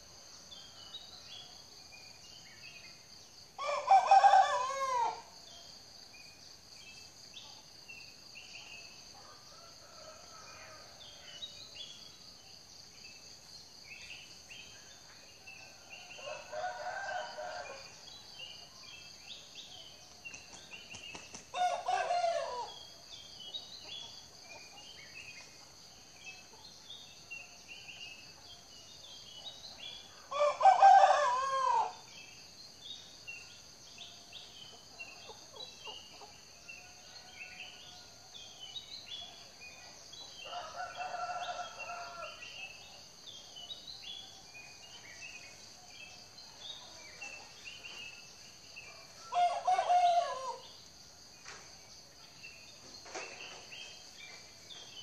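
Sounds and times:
roosters crowing: 3.6s - 5.2s, 15.7s - 17.9s, 21.5s - 22.8s, 30.3s - 32.0s, 40.4s - 42.5s, 49.2s - 50.6s.

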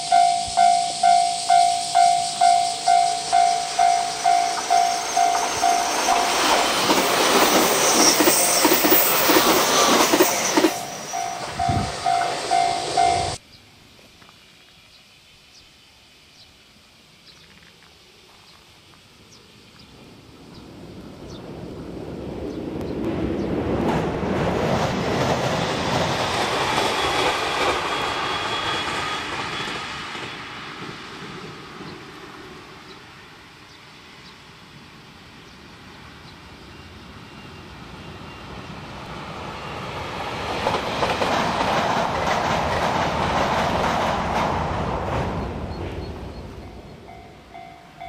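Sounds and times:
train wheels clattering over rail joints: 3.4s - 13.4s, 40.2s - 46.1s.

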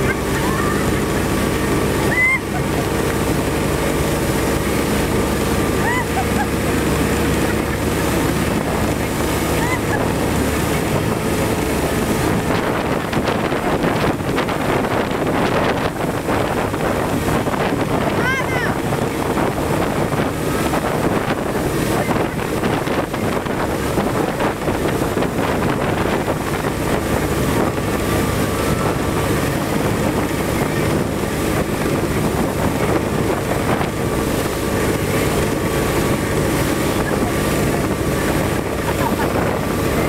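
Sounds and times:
motorboat engine drone: 0.0s - 40.0s
water rushing from wake: 0.0s - 40.0s
wind buffeting microphone: 0.0s - 40.0s.

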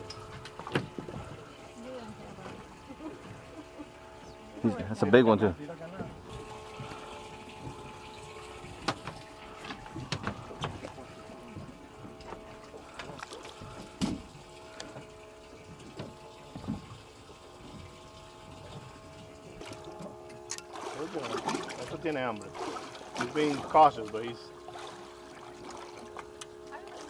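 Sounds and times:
motor hum: 0.0s - 27.0s
water lapping against boat hull: 0.0s - 27.0s
knocks and splashes: 7.6s - 14.6s, 15.9s - 27.0s.

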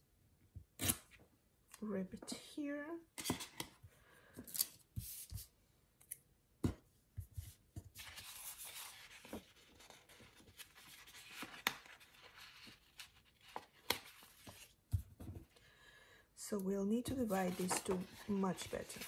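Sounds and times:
paper pages rustling: 7.4s - 14.8s, 17.1s - 19.0s.

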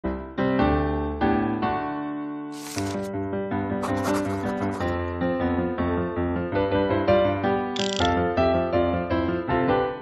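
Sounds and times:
paper page turning: 2.5s - 3.1s, 3.8s - 4.9s, 7.8s - 8.1s
pencil scratching on paper: 2.6s - 3.1s, 3.8s - 5.0s.

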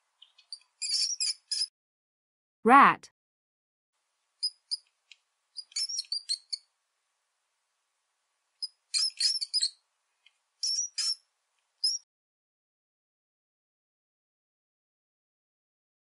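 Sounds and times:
rat squeaking: 0.2s - 1.7s, 4.4s - 4.8s, 5.5s - 6.7s, 8.6s - 9.8s, 10.6s - 11.2s, 11.8s - 12.0s.

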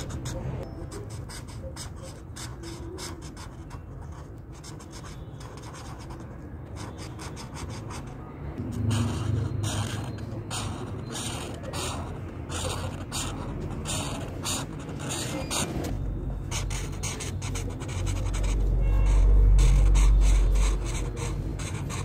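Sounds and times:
marker scratching on paper: 0.0s - 22.0s.

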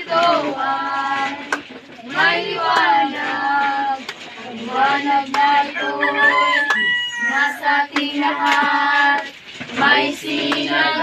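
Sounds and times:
voices singing slow song: 0.0s - 11.0s.

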